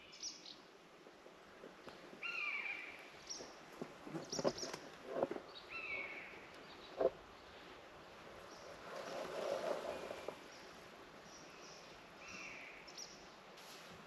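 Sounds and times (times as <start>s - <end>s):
faint woodland ambience: 0.0s - 14.0s
small birds chirping: 1.9s - 7.7s.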